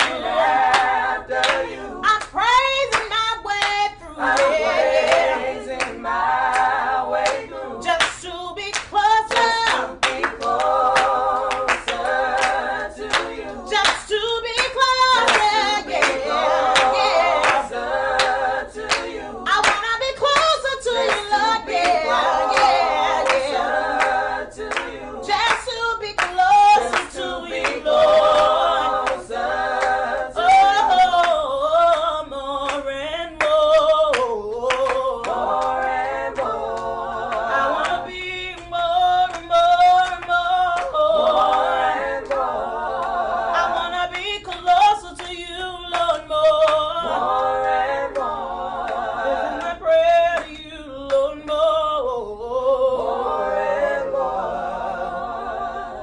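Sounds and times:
hand claps: 0.0s - 7.4s, 8.0s - 29.2s, 32.7s - 43.2s
group singing a cappella: 0.0s - 56.0s.

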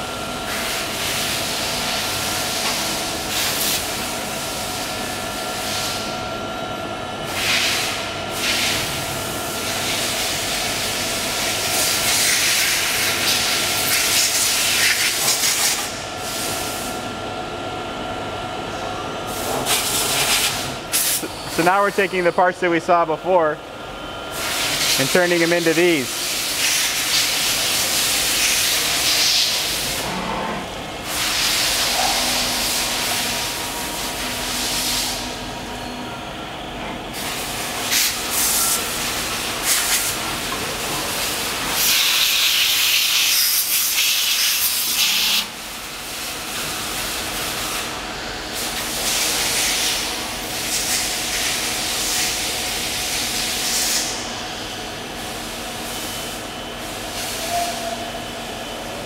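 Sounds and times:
coolant spray hissing: 31.0s - 35.3s.

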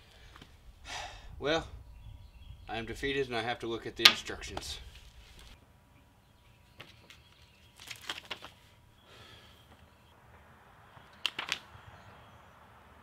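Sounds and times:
paper rustling and crinkling: 6.8s - 8.7s.

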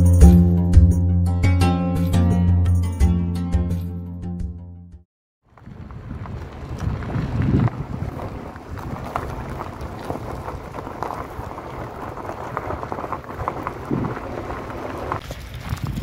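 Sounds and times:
footsteps crunching on gravel: 5.5s - 16.0s
irregular crackles: 5.5s - 16.0s
wind rumble on microphone: 5.5s - 16.0s.

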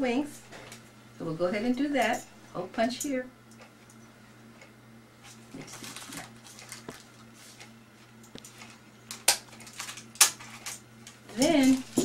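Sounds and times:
wax paper rustling: 5.2s - 12.0s.

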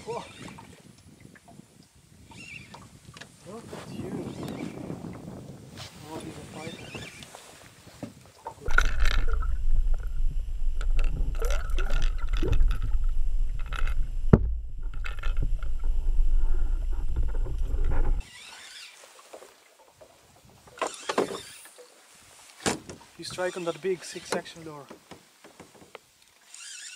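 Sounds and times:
muffled rushing water: 2.9s - 18.2s.

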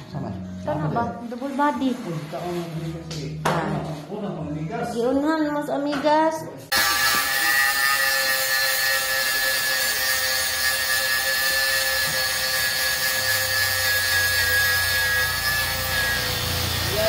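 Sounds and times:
machine hissing and whining: 6.7s - 17.0s.

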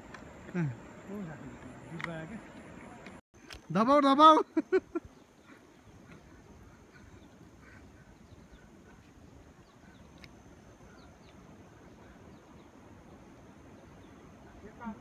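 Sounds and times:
outdoor background hiss: 0.0s - 15.0s
small birds chirping: 4.4s - 15.0s.

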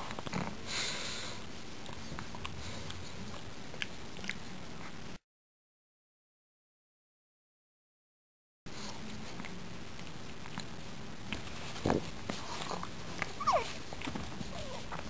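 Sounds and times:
puppies scuffling on carpet: 8.7s - 15.0s
puppy whining: 12.5s - 15.0s.

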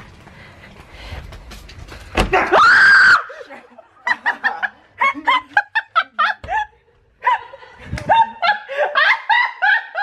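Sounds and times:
person screaming: 2.4s - 3.4s.

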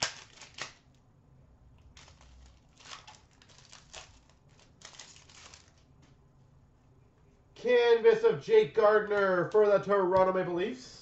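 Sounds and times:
card pack wrappers crinkling: 0.0s - 1.0s, 1.8s - 6.1s.

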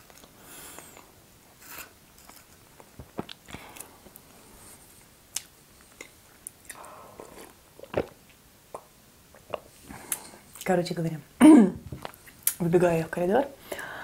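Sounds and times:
person chewing: 0.0s - 1.1s, 5.3s - 10.6s, 12.0s - 12.6s
person sipping tea: 5.8s - 8.2s.

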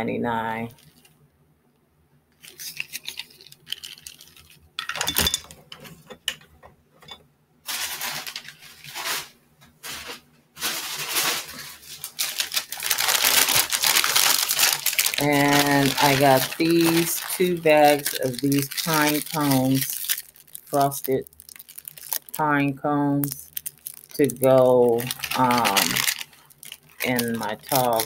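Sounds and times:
plastic bag crinkling: 0.7s - 1.1s, 2.4s - 5.4s, 7.7s - 28.0s
objects handled and set down: 4.8s - 11.7s.

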